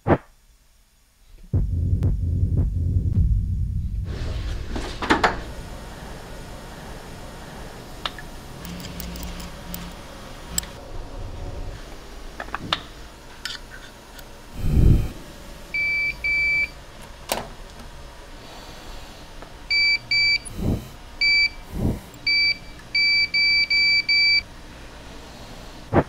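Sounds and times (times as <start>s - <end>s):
low thuds: 1.4s - 5.6s
short machine beeps: 19.7s - 20.6s, 22.3s - 24.4s.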